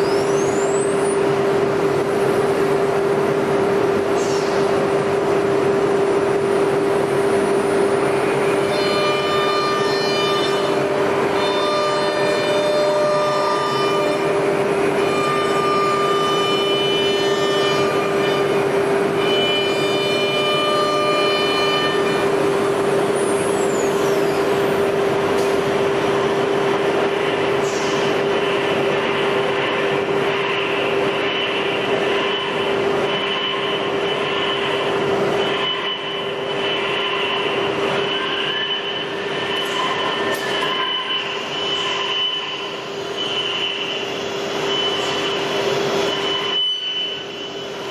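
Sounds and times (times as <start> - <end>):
router spindle high whine: 6.3 - 47.9.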